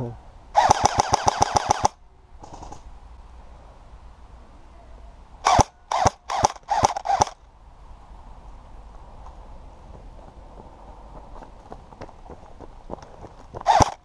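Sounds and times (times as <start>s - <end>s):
airsoft guns firing bursts: 0.6s - 2.8s, 5.4s - 7.4s, 13.6s - 14.0s.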